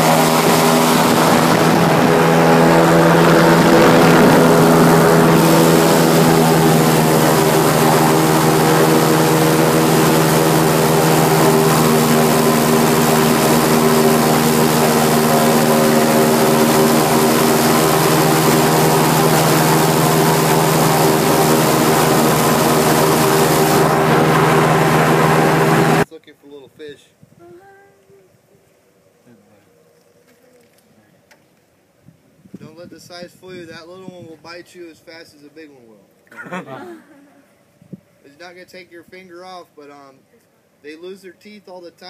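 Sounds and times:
airboat engine and propeller drone: 0:00.0 - 0:26.1.

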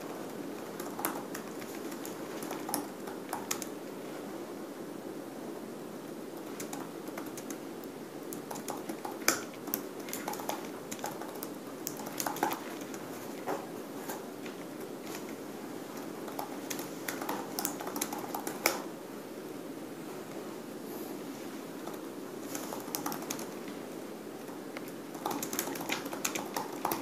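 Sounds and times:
low room hum: 0:00.0 - 0:27.0
laptop keyboard clicks: 0:00.6 - 0:03.7, 0:06.4 - 0:07.6, 0:08.3 - 0:13.0, 0:16.2 - 0:18.9, 0:21.9 - 0:23.5, 0:24.8 - 0:27.0.

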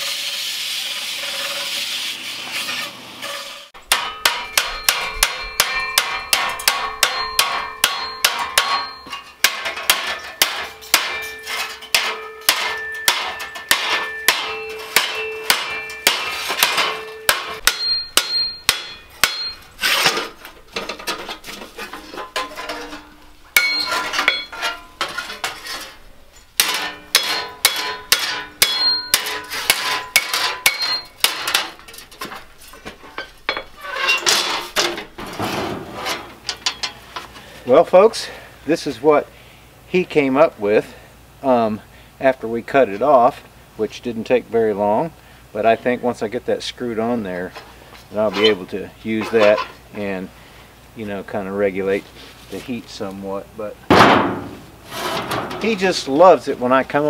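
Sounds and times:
hammer striking sheet steel: 0:03.8 - 0:21.2, 0:21.9 - 0:26.0, 0:26.6 - 0:31.9.

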